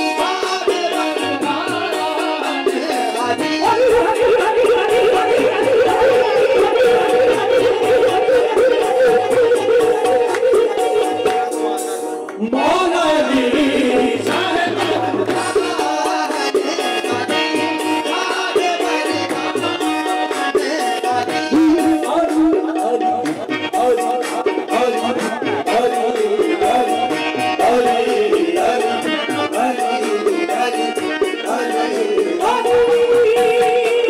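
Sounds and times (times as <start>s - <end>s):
harmonium tones: 0.0s - 12.4s
drums: 0.0s - 34.0s
men singing: 0.0s - 34.0s
hand claps: 7.0s - 12.4s, 14.2s - 15.6s, 23.2s - 26.4s.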